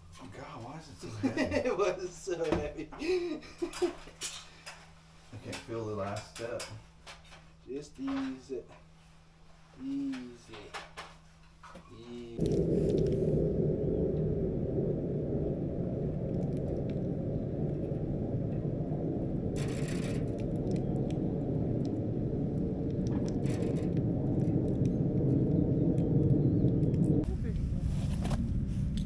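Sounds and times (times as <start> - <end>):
wind buffeting microphone: 12.4 - 29.0.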